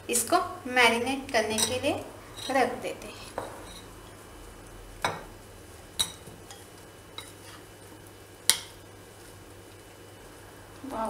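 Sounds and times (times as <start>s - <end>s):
spoon clinking on bowls: 6.0s - 6.6s.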